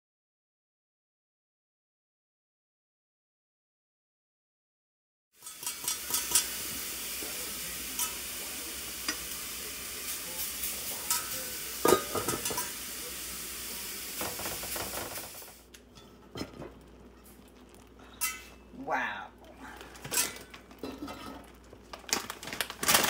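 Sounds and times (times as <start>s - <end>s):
casserole sizzling: 5.4s - 23.0s.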